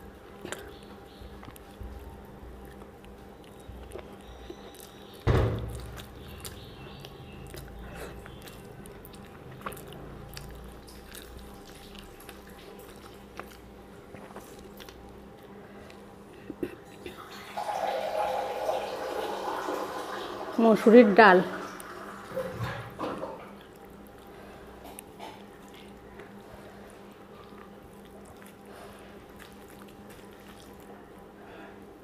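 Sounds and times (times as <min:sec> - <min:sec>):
person chewing: 0:00.0 - 0:17.2, 0:23.5 - 0:31.8
loud thump: 0:05.3 - 0:05.7
wet mouth clicks: 0:05.7 - 0:15.0.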